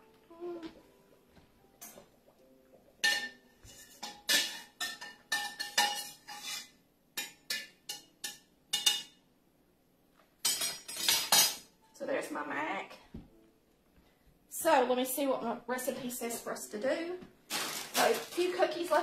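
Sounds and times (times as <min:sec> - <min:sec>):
metal pot and colander clanking: 0:03.0 - 0:09.2, 0:10.4 - 0:11.7.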